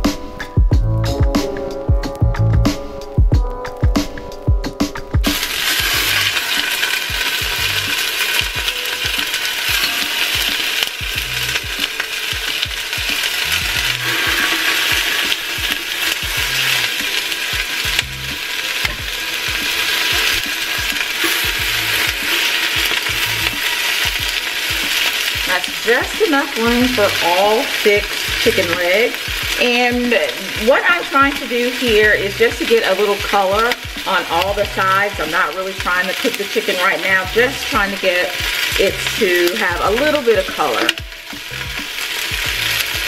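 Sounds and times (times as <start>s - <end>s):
chicken sizzling in hot oil: 0.0s - 43.0s
metal spatula scraping pot: 5.3s - 35.5s.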